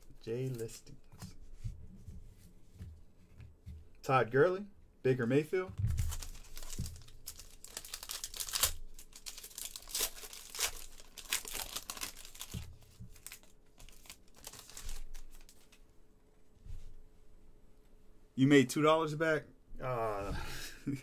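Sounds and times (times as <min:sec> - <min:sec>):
foil wrapper tearing and crinkling: 0:05.9 - 0:15.8.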